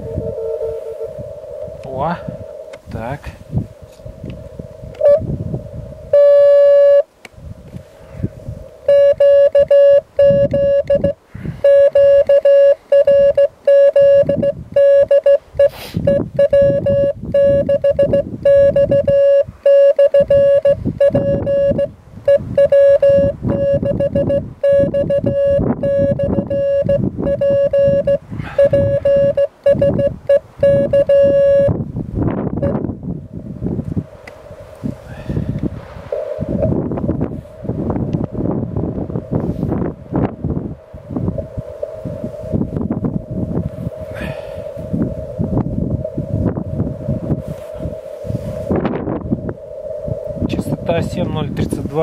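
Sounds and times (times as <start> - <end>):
morse code tone: 0.0 - 1.1, 5.0 - 5.3, 6.1 - 7.1, 8.9 - 31.8, 32.6 - 32.8
low noisy rumble: 0.0 - 15.6.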